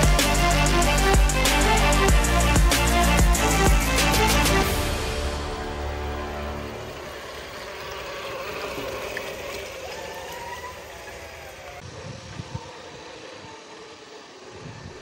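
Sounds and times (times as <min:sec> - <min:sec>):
water splashing: 0:05.8 - 0:14.9
toy truck electric motor whining: 0:05.9 - 0:15.0.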